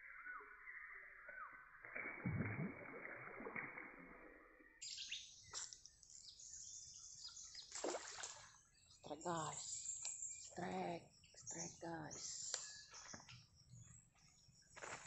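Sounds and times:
birds chirping: 4.8s - 15.0s.

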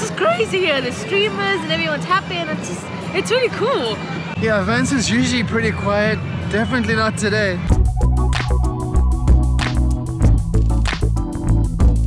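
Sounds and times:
electronic music with deep bass: 7.7s - 12.0s.

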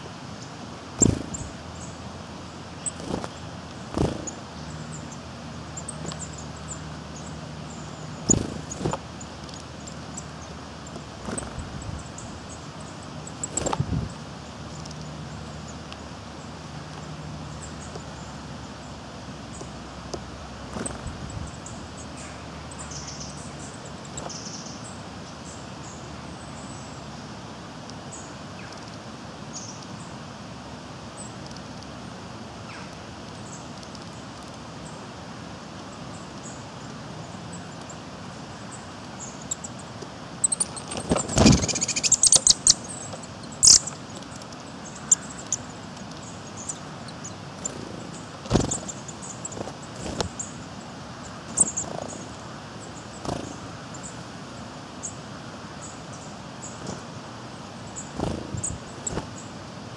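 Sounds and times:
steady background hiss: 0.0s - 59.9s
bird wingbeats: 0.9s - 1.7s, 2.8s - 4.6s, 8.2s - 12.5s, 13.3s - 14.1s, 20.1s - 21.6s, 40.4s - 50.6s, 53.1s - 53.9s, 56.6s - 57.2s, 58.0s - 59.5s
faint high bird calls: 35.9s - 54.2s.

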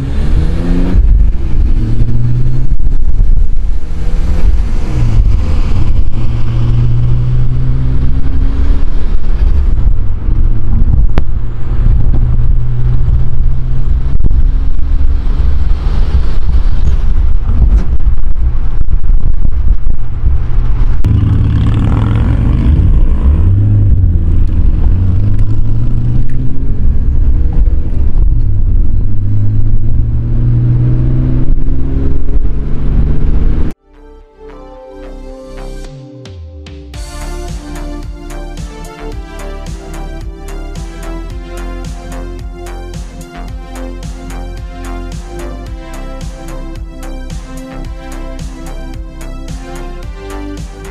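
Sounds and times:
car engine accelerating and shifting: 0.0s - 33.8s, 37.0s - 50.9s.

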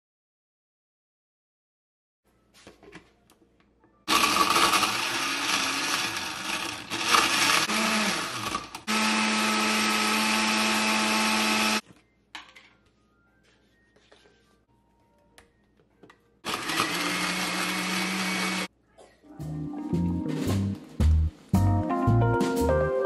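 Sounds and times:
blender running: 4.1s - 11.8s, 16.4s - 18.7s.

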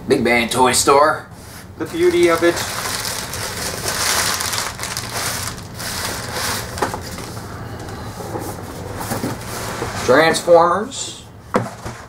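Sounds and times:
bubble wrap rustling and crinkling: 1.8s - 7.5s.

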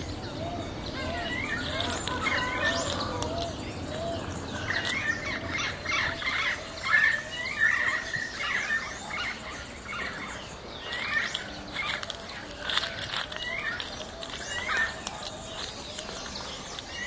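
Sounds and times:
birds chirping and whistling: 0.0s - 17.0s.

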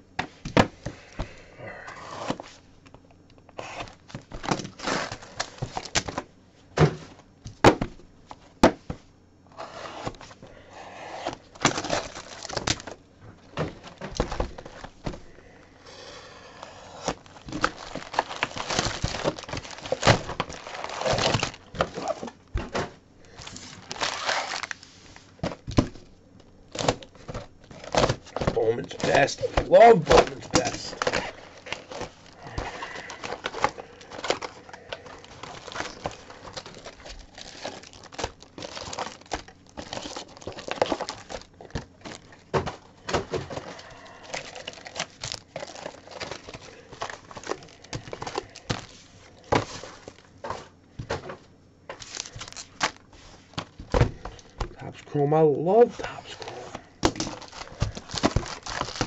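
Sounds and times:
plastic wrap tearing and crinkling: 11.5s - 13.0s, 17.0s - 22.3s, 23.3s - 25.8s, 26.7s - 42.5s, 43.5s - 50.3s, 52.0s - 53.1s, 56.4s - 59.0s.

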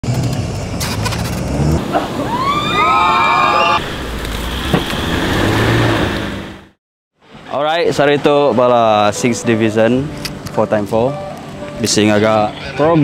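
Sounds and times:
off-road engines revving: 0.1s - 2.4s, 3.0s - 6.8s
high-pitched wail: 1.9s - 3.9s.

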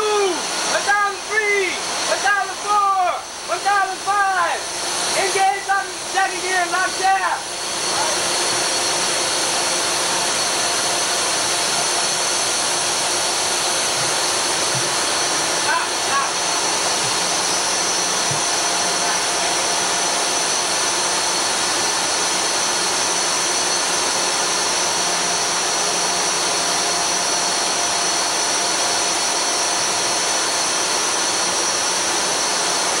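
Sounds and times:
high steady machine whines: 0.0s - 33.0s
engine room machinery rushing: 4.5s - 25.0s.

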